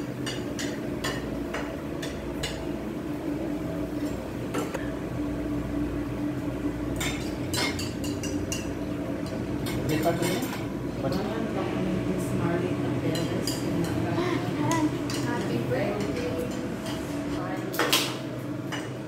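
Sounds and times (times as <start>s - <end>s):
low background hum: 0.0s - 19.0s
metal tongs clinking on grill: 7.0s - 11.2s.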